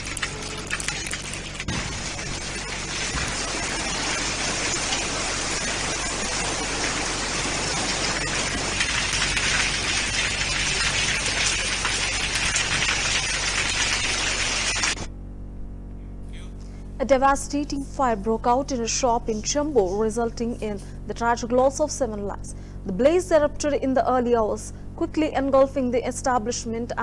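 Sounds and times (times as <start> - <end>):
heavy rain pouring: 0.0 - 15.1.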